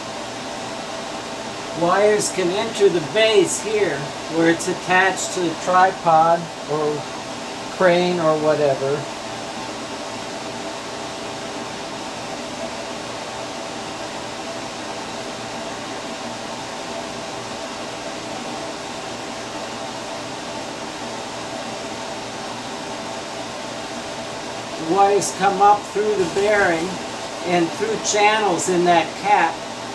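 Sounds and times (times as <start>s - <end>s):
fan-like room hum and hiss: 0.0s - 29.9s.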